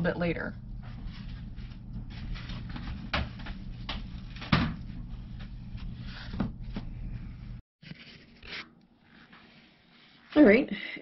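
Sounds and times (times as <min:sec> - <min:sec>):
steady low hum: 0:00.0 - 0:07.6.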